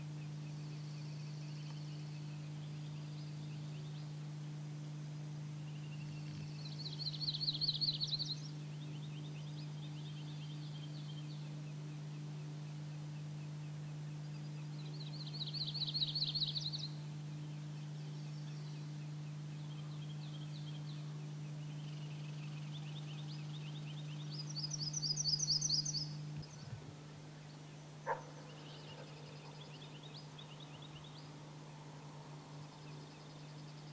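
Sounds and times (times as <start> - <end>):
songbirds trilling: 0.0 - 33.9
steady low hum: 0.0 - 33.9.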